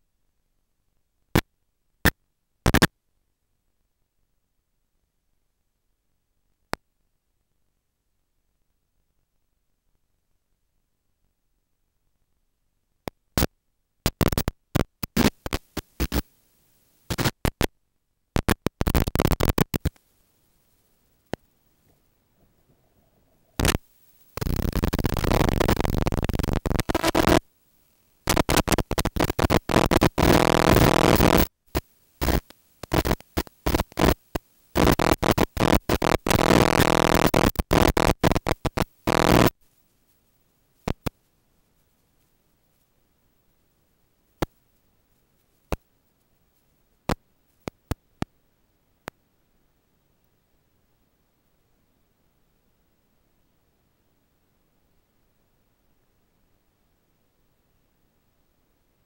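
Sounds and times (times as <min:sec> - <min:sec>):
harsh scratchy crackling: 0:02.0 - 0:02.9, 0:13.4 - 0:16.3, 0:17.1 - 0:17.7, 0:18.4 - 0:22.7, 0:23.4 - 0:39.6, 0:40.8 - 0:41.2.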